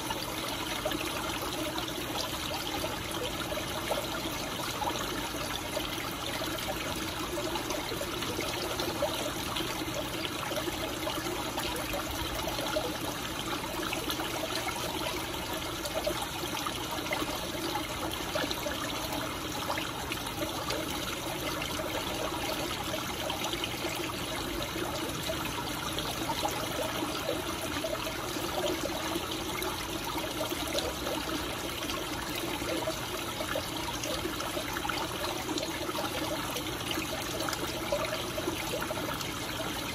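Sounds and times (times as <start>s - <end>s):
water trickling and splashing: 0.0s - 39.9s.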